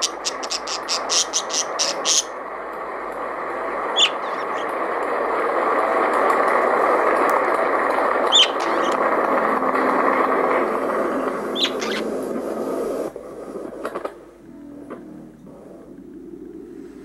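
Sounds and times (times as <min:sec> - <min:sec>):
budgerigar chirping: 0:00.0 - 0:02.3, 0:04.0 - 0:04.6, 0:08.3 - 0:09.0, 0:11.6 - 0:12.1.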